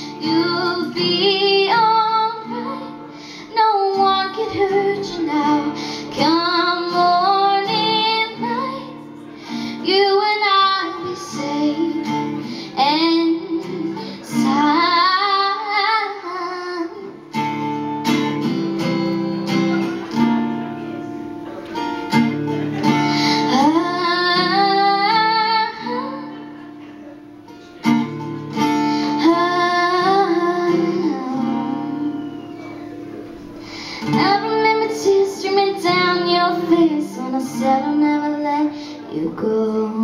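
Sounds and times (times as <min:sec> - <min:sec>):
girl singing: 0:00.0 - 0:17.3, 0:23.4 - 0:26.4, 0:28.7 - 0:32.6, 0:34.0 - 0:40.0
acoustic guitar strumming: 0:00.0 - 0:40.0.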